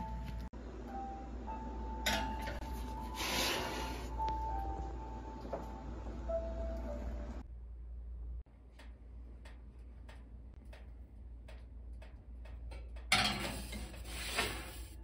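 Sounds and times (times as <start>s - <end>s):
metal pan sliding onto oven rack: 13.2s - 14.9s.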